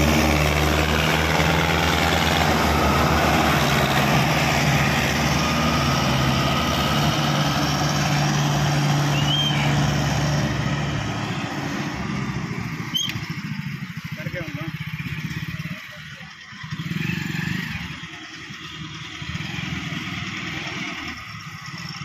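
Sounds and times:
tractor diesel engine running: 0.0 - 22.0.

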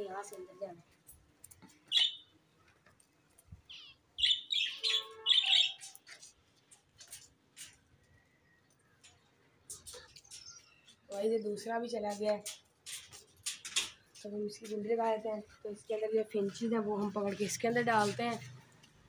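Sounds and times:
cage birds chirping: 1.8 - 2.6, 3.6 - 11.8.

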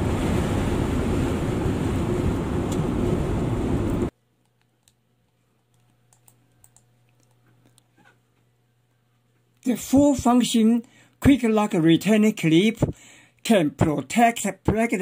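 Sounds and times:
car road and wind noise: 0.0 - 4.1.

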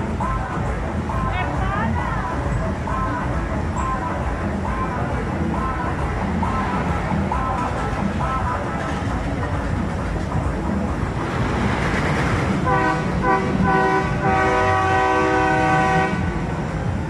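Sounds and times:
horn toots and blast: 12.6 - 16.5.

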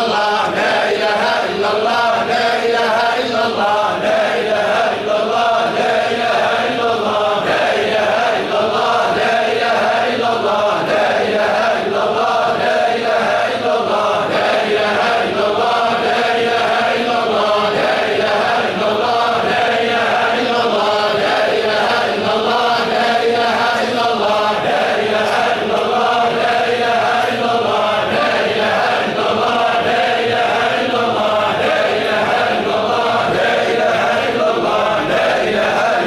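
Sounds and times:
men chanting in unison: 0.0 - 36.0.

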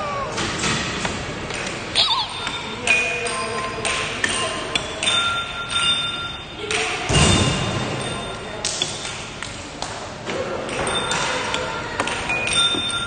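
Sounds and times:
arcade machine beeps and chimes: 2.0 - 6.7
air hockey puck clacking: 2.4 - 6.0, 8.6 - 13.0.

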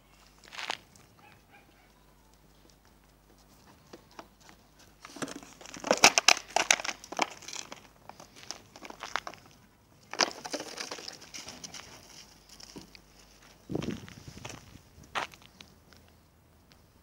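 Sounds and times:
plastic crinkling and crackling: 5.1 - 12.8.

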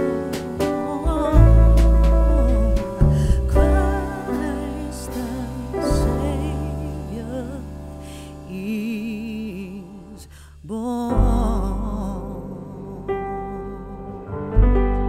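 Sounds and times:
slow melody with vibrato: 0.0 - 10.3, 11.0 - 15.0.

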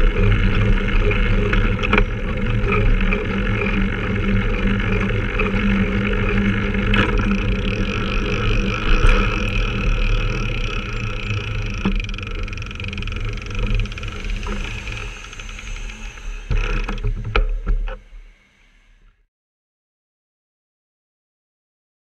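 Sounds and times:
vehicle engine running: 0.0 - 18.5
road traffic: 5.0 - 19.0
sharp clicks and knocks: 6.5 - 18.0.

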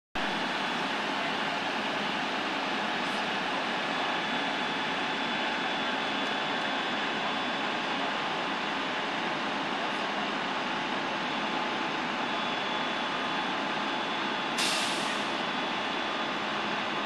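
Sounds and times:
fire engines idling: 0.2 - 17.0
air brakes hissing: 14.4 - 15.4.

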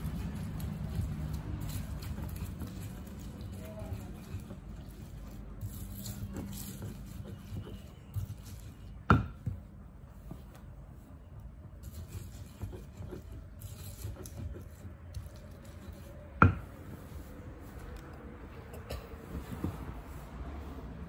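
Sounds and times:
pestle tapping and squishing: 6.1 - 9.7
pestle knocking against mortar: 6.3 - 9.6, 16.4 - 16.7.

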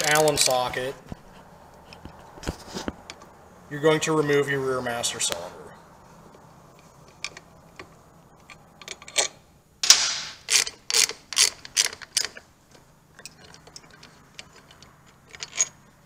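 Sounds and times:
hand ratchet clicking: 10.4 - 12.4.

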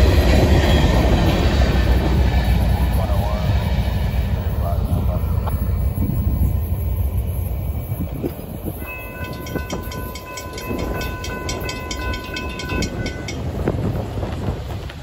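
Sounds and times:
crossing warning bell ringing: 7.7 - 13.7.

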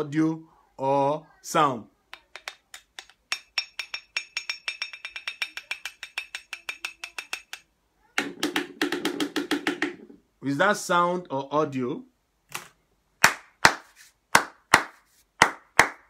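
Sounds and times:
rapid tapping on ringing object: 2.2 - 7.6.

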